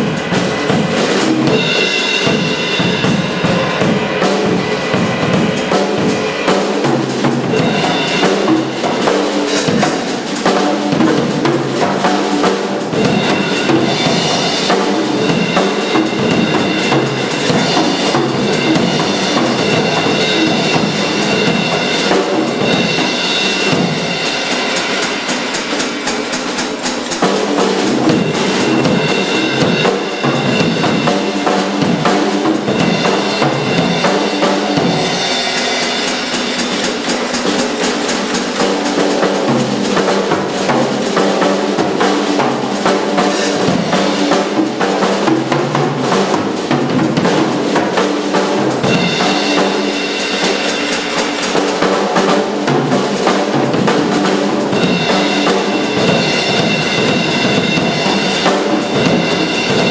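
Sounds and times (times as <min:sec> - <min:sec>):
cymbals ringing: 0:00.0 - 0:59.9
jazz drum kit playing: 0:00.0 - 0:59.9.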